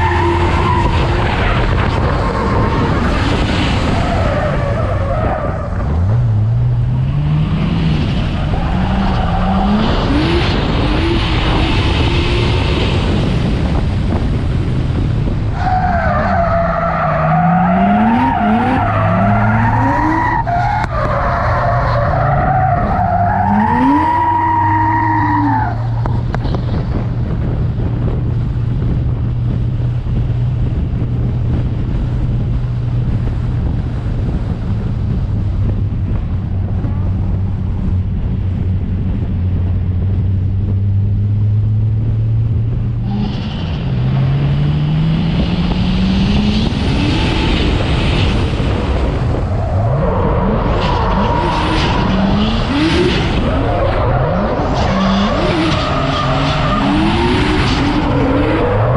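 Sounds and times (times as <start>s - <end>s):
car engine revving: 0.0s - 29.2s, 36.8s - 58.9s.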